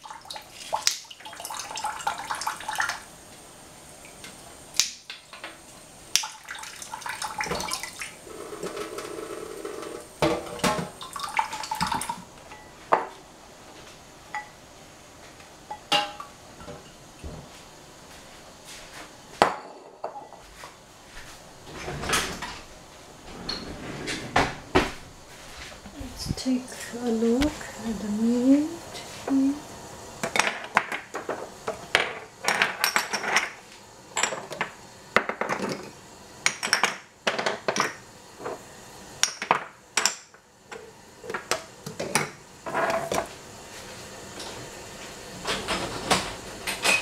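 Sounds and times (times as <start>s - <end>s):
dishes clinking in metal sink: 10.2s - 13.1s, 15.7s - 17.4s, 45.4s - 47.0s.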